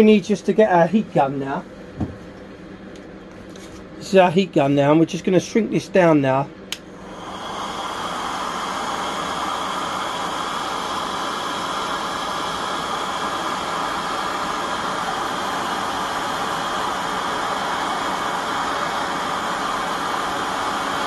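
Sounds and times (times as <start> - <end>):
heat gun fan hissing: 5.2 - 21.0.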